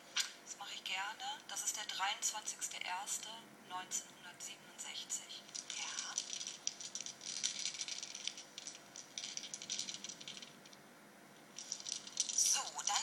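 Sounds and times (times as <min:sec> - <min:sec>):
gemstones rattling in hands: 0:05.4 - 0:10.8, 0:11.5 - 0:13.0.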